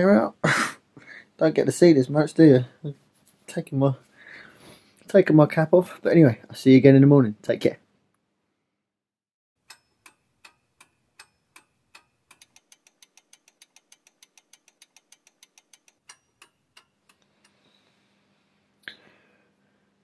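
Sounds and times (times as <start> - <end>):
clock ticking: 9.6 - 17.6.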